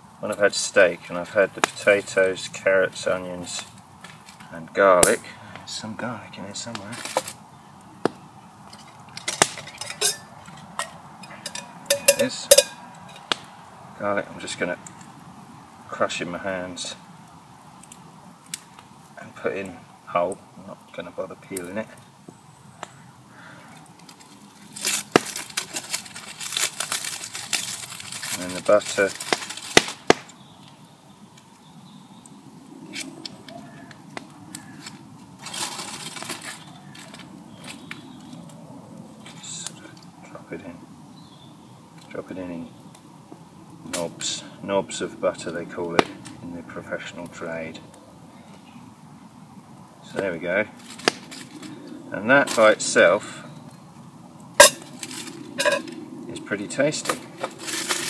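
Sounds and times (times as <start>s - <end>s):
metal pot clinks and knocks: 8.8s - 13.2s, 54.6s - 54.9s, 55.6s - 55.9s
foil crinkle: 23.7s - 30.4s, 34.6s - 38.5s, 50.8s - 52.8s, 54.6s - 56.0s, 57.0s - 58.0s
butter wrapper rustling: 23.8s - 30.3s, 34.6s - 38.5s.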